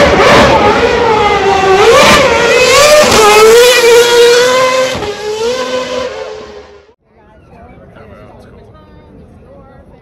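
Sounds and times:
racing car engine revving: 0.0s - 7.0s.

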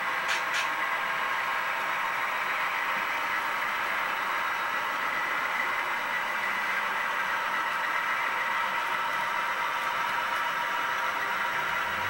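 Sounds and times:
model train wheels rolling on rails: 0.0s - 12.0s.

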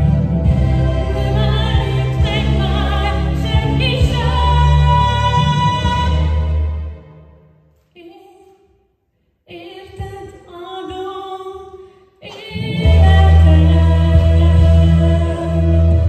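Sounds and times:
full accompaniment with deep bass: 0.0s - 7.6s, 12.5s - 16.0s
woman singing: 0.7s - 6.7s, 9.5s - 16.0s.

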